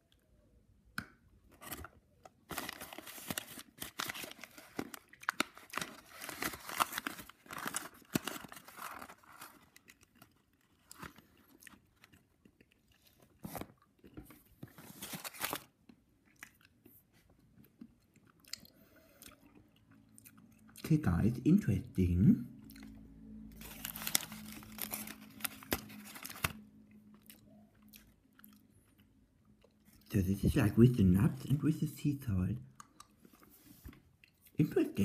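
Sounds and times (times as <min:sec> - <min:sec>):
foil wrapper tearing and crinkling: 0:02.5 - 0:11.2, 0:15.0 - 0:15.7, 0:23.6 - 0:26.6.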